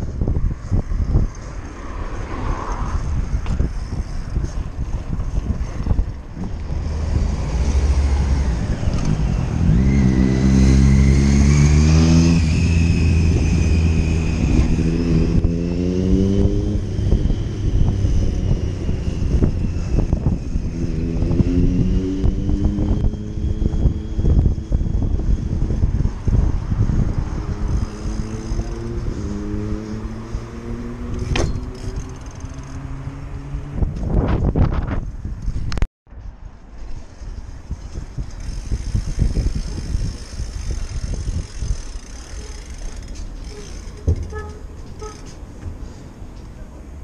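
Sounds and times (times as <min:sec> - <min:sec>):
wind noise: 0:00.0 - 0:46.3
engine accelerating through gears: 0:06.6 - 0:25.9.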